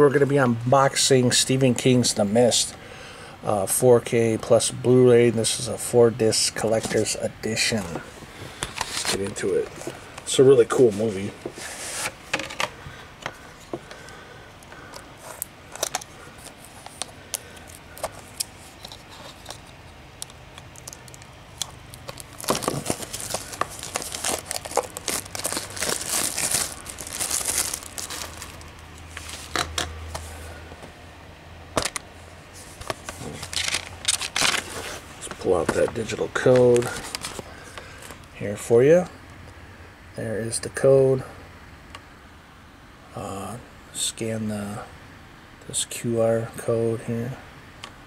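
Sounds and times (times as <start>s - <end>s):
plastic case opening: 20.6s - 29.9s, 32.8s - 37.4s
plastic wrap crinkling and tearing: 20.7s - 29.7s, 33.2s - 35.0s.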